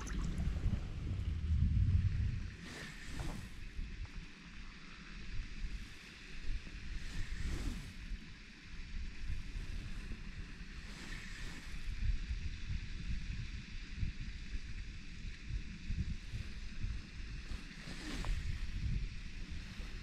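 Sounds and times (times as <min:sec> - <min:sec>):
wind buffeting microphone: 0:00.0 - 0:04.3, 0:09.0 - 0:20.0
steady high hiss: 0:02.4 - 0:20.0.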